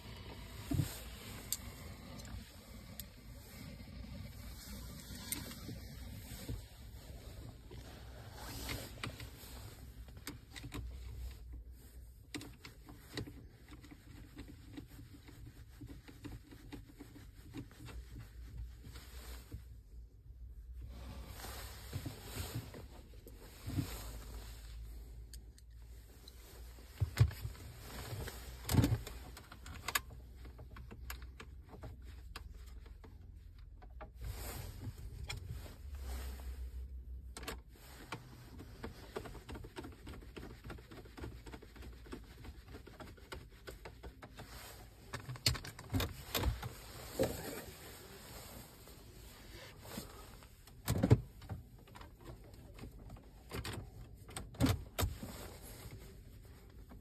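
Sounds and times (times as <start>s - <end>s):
low steady rumble: 0.0s - 29.6s.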